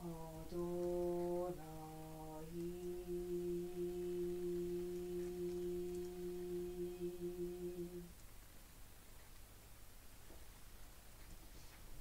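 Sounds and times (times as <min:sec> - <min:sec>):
voice chanting a long note: 0:00.0 - 0:08.1.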